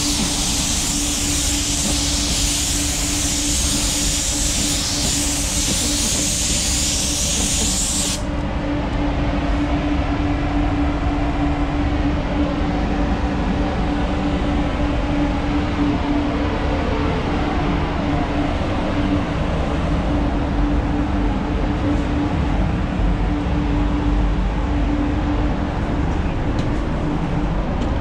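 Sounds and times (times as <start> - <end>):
paint spray gun hissing: 0.0 - 8.2
ventilation hum and rumble: 0.0 - 28.0.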